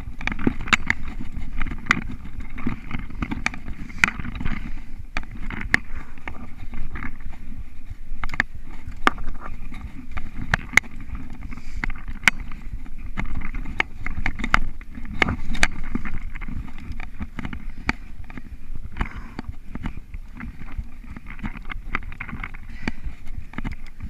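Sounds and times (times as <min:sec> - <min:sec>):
bike rattling over bumps: 0:00.0 - 0:24.0
bike tyres rumbling on dirt: 0:00.0 - 0:24.0.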